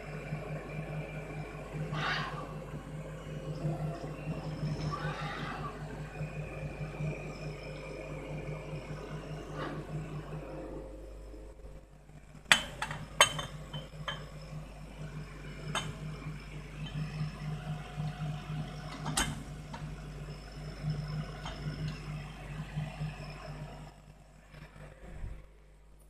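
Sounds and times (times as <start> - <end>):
low machine hum: 0.0 - 26.0
glass bottle clinking on metal: 13.2 - 14.3.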